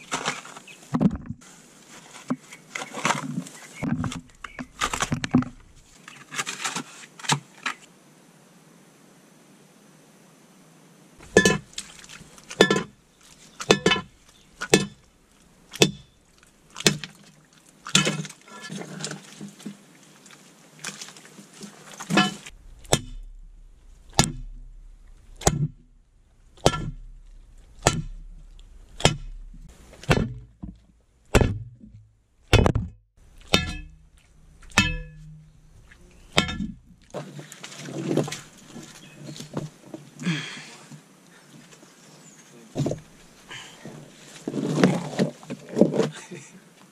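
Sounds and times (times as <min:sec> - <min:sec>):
pickaxe striking rocky soil: 0:03.9 - 0:05.8, 0:13.6 - 0:15.0, 0:15.8 - 0:16.1, 0:16.8 - 0:17.1, 0:22.1 - 0:25.8, 0:26.5 - 0:30.6, 0:31.3 - 0:35.5.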